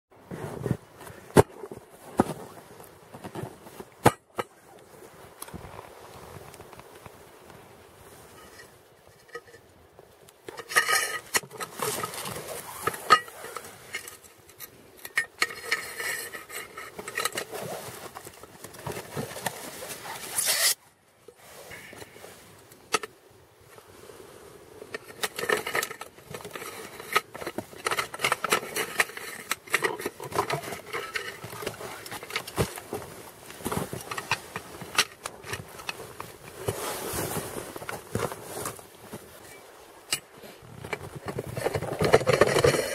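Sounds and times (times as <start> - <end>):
metal plates clinking and scraping: 8.3 - 9.6, 10.5 - 18.3, 20.2 - 20.8, 24.9 - 32.8, 39.4 - 42.9.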